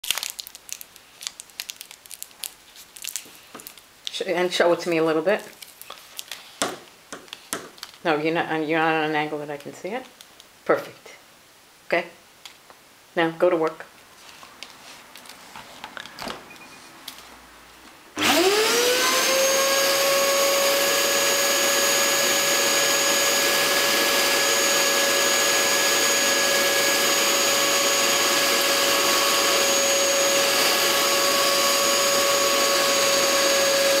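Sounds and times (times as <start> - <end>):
vacuum cleaner motor whine: 18.2 - 34.0.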